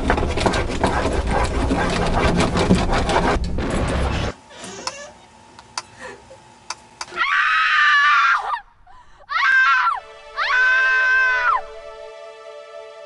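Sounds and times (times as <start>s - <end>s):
person screaming: 7.1s - 8.6s, 9.3s - 11.7s
held music chord: 10.0s - 13.0s.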